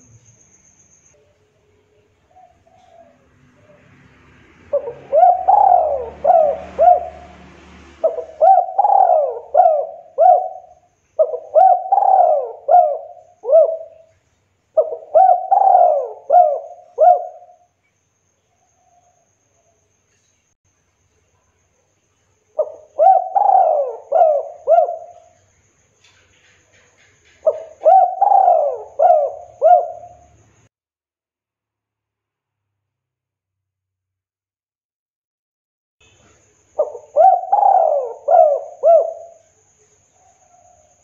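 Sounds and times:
dove cooing: 2.3s - 3.9s, 4.7s - 7.4s, 8.0s - 14.1s, 14.8s - 17.6s, 22.6s - 25.4s, 27.0s - 30.4s, 36.8s - 39.4s.

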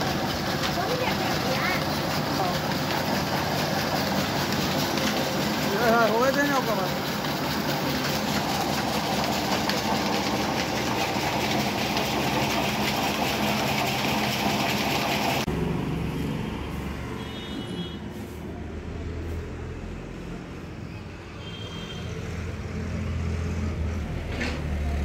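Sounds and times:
belt-driven mill machinery running: 0.0s - 15.5s.

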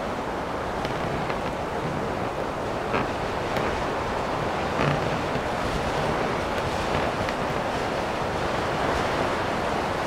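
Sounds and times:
blizzard wind rushing: 0.0s - 10.0s.

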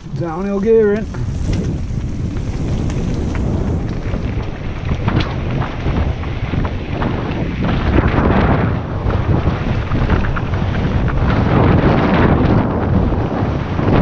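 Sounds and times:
bike clicks and rattles: 0.0s - 14.0s
tyres rumbling over gravel: 0.0s - 14.0s
wind rushing over microphone: 0.0s - 14.0s.

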